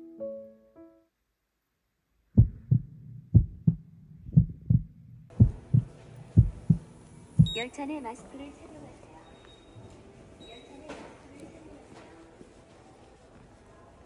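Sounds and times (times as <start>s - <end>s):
heartbeat thumps: 2.4s - 7.6s.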